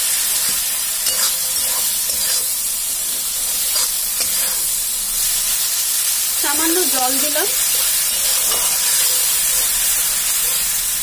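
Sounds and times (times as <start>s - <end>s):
masala sizzling in hot oil: 0.0s - 11.0s
spatula scraping pan: 0.3s - 4.9s, 7.5s - 10.8s.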